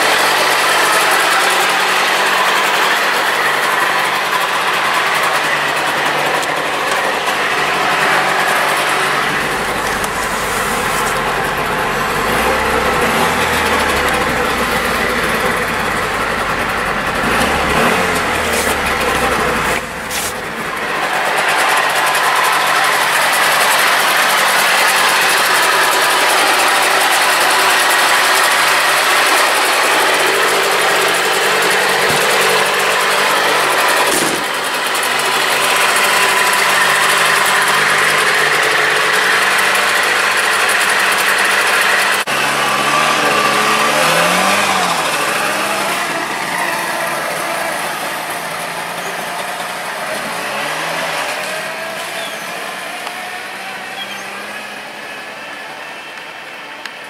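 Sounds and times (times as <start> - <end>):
engine revving as car pulls away: 0.0 - 55.9
two-stroke engine idling: 0.0 - 57.0.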